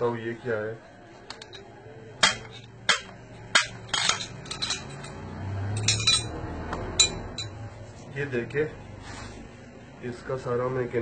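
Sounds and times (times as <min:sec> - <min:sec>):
metallic clinks: 0:02.4 - 0:07.6.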